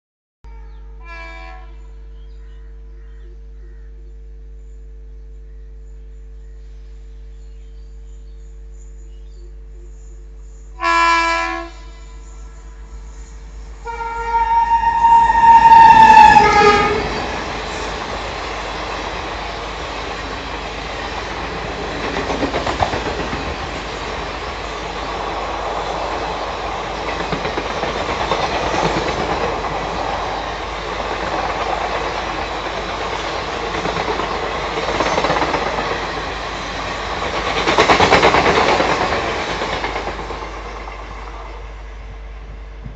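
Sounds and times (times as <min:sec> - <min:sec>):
train horn: 0:00.5 - 0:02.0, 0:10.8 - 0:13.1, 0:13.8 - 0:17.4
train wheels clattering on rails: 0:15.7 - 0:41.7.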